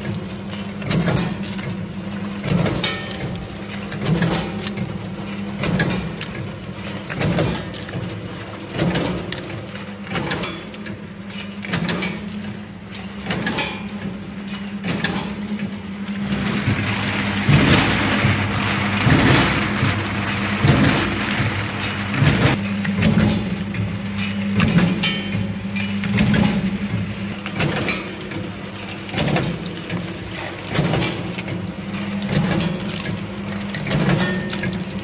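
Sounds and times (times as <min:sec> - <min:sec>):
machine motor hum: 0:00.0 - 0:35.0
walnuts cracking: 0:27.4 - 0:35.0.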